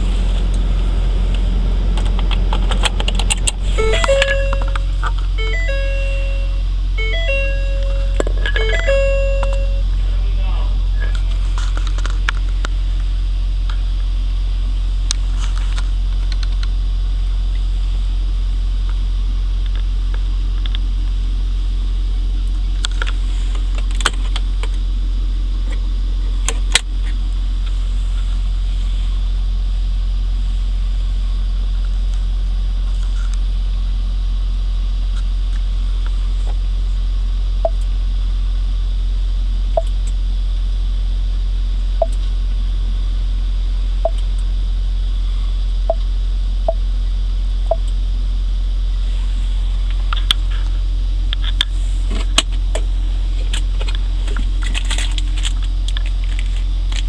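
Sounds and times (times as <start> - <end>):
diesel engine idling: 0.0 - 38.4, 45.3 - 57.0
short beeps: 3.7 - 9.9.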